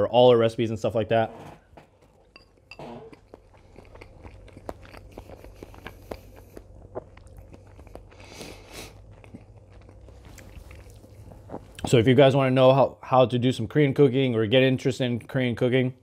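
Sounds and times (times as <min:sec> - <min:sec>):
person chewing crunchy food: 0:01.9 - 0:12.1.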